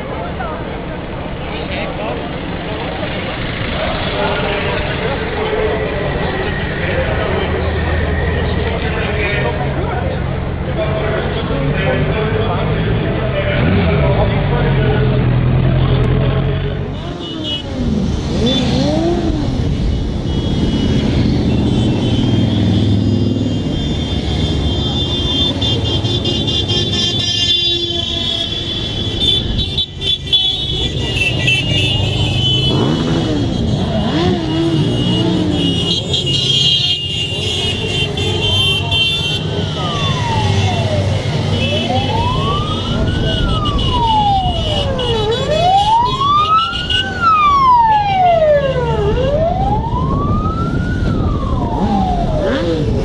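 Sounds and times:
motorcycle engines rumbling: 0:00.0 - 0:53.0
siren wailing: 0:39.4 - 0:53.0.

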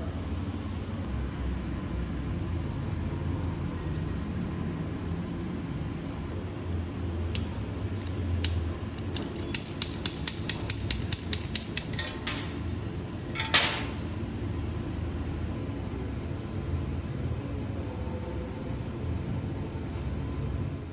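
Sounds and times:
steady low hum: 0:02.3 - 0:16.5
welding rod tapping on steel plate: 0:07.4 - 0:14.2.

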